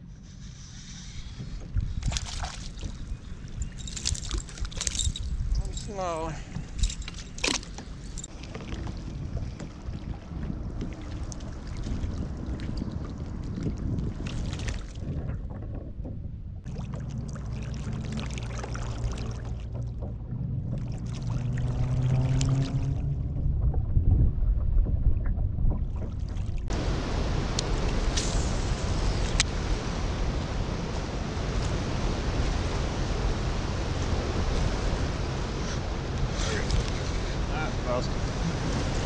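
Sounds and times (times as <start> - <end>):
water washing along kayak hull: 0.4 - 39.0
low hum rising in pitch: 16.0 - 36.4.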